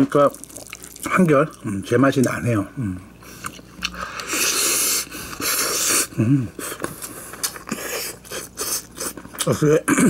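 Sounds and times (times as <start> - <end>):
person humming: 6.1 - 6.6.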